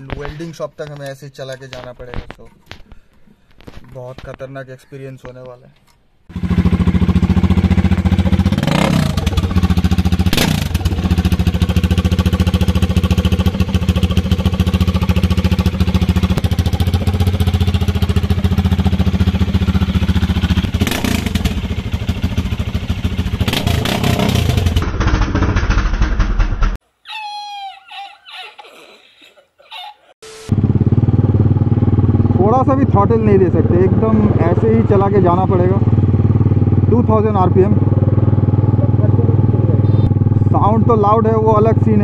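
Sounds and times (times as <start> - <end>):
motorcycle engine idling loudly: 6.3 - 26.6, 30.5 - 42.0.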